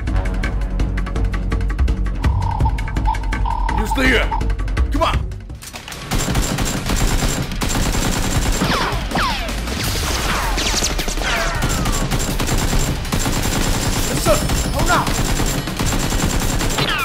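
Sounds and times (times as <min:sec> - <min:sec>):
rapid gunfire: 0:05.6 - 0:17.0.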